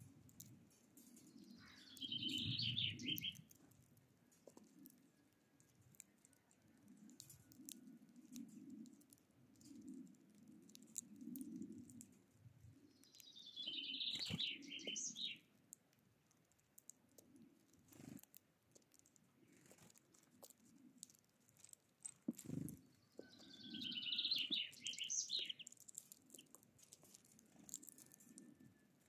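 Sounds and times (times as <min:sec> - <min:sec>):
birds tapping at seed tray: 0:00.2 - 0:12.1, 0:12.9 - 0:15.4, 0:16.8 - 0:29.0
songbird singing: 0:01.1 - 0:03.5, 0:12.8 - 0:15.5, 0:22.5 - 0:26.6.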